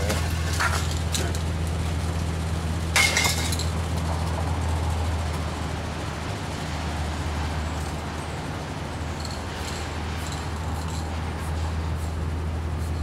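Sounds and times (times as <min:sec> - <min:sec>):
street traffic engine hum: 0:00.0 - 0:13.0
spray-paint cans clinking: 0:09.2 - 0:11.2.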